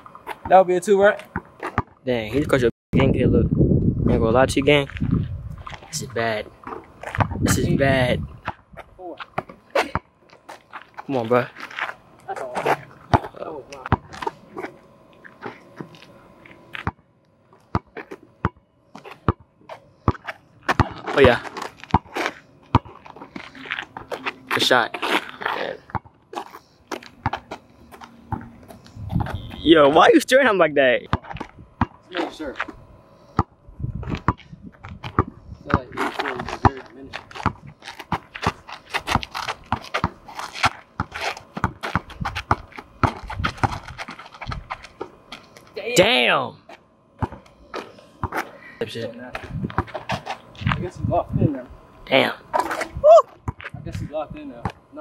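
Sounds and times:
basketball bouncing on asphalt: 1.2 - 2.0, 6.7 - 7.5, 8.4 - 11.1, 16.7 - 17.0, 17.6 - 24.4, 25.9 - 29.3, 31.1 - 32.1, 33.4 - 45.2, 47.2 - 47.6, 48.2 - 48.4, 49.5 - 50.2, 53.4 - 53.8.

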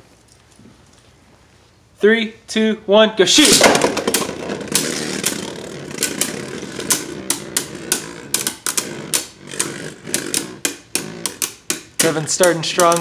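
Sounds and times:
spinning tops whirring: 3.3 - 13.0
tops clacking together: 3.4 - 13.0.

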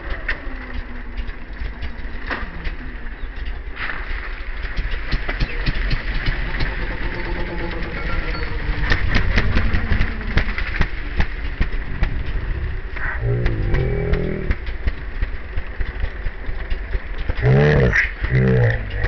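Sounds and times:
irregular clicks and knocks: 4.5 - 19.0
motorcycle engine running: 4.8 - 19.0.

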